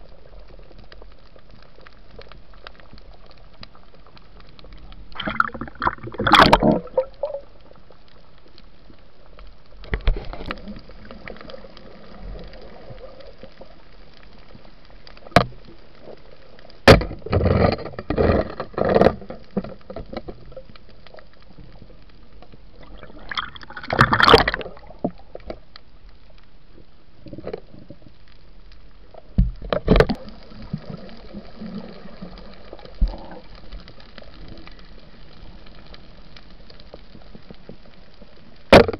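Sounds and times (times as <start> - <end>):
bubbling and splashing: 0.0 - 8.4, 9.2 - 25.7, 29.0 - 37.3.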